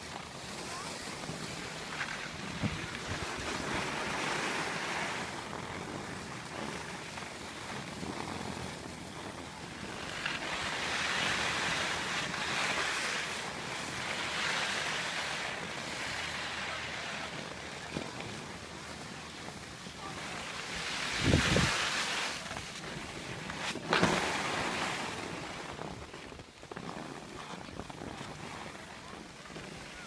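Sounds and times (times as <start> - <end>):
skis sliding over snow: 0.0 - 30.0.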